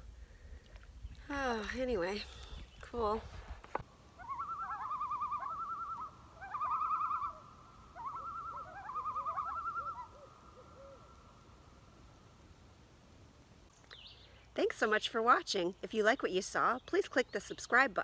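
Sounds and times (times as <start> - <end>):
loon tremolo call: 4.2 - 11.2.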